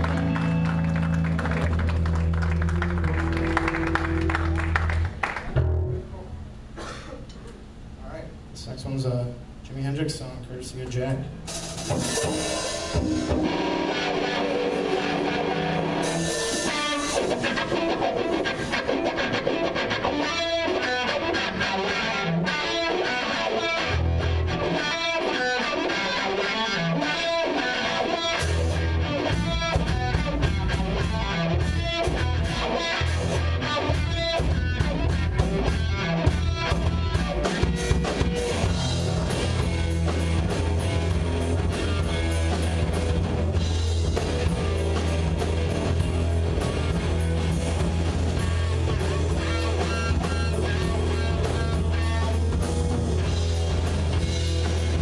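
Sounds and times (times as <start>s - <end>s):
bass guitar: 0.0s - 6.8s, 11.2s - 55.0s
electric guitar: 0.0s - 6.9s, 11.5s - 55.0s
drum kit: 11.2s - 55.0s.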